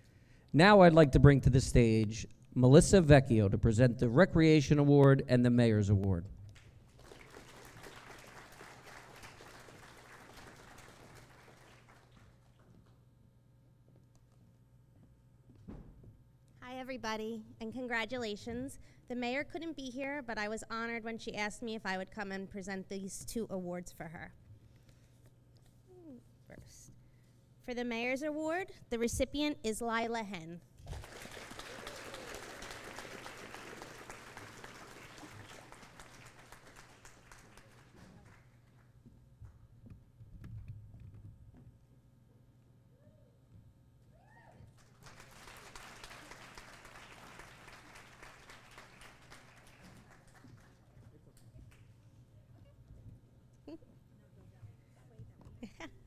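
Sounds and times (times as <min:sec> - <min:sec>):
audience applauding: 0:06.6 - 0:12.6, 0:30.9 - 0:38.6, 0:44.8 - 0:51.0.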